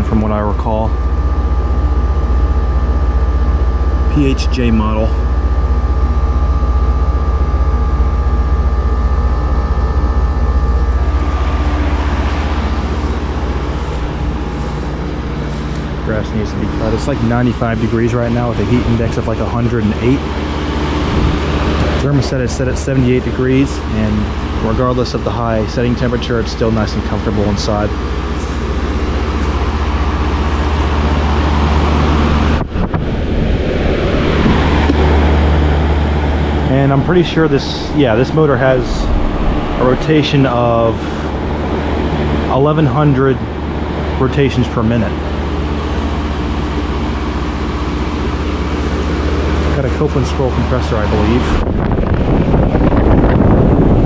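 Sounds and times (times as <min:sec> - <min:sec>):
fan air rushing: 0:00.0 - 0:54.0
heat pump compressor hum: 0:00.0 - 0:54.0
steady tones: 0:00.0 - 0:54.0
rushing air: 0:28.2 - 0:42.6, 0:51.4 - 0:54.0.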